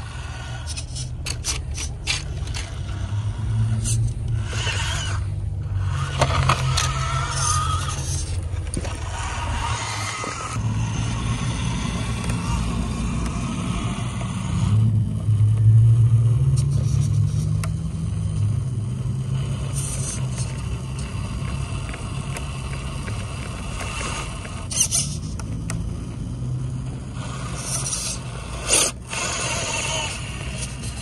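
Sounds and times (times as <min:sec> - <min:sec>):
small electric motor running: 0:00.0 - 0:31.0
short high squeaks: 0:06.6 - 0:08.4, 0:24.6 - 0:25.3.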